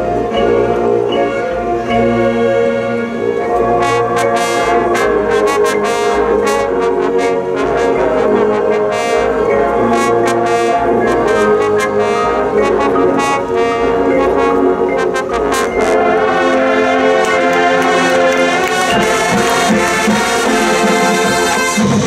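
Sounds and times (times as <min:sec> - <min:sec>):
brass chords: 0:00.0 - 0:22.0
drums: 0:18.3 - 0:22.0.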